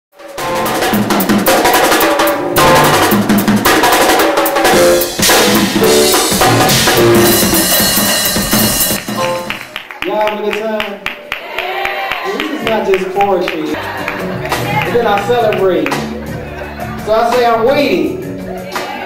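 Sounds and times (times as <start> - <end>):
music with drum kit beat: 0.2 - 9.9, 13.8 - 19.0.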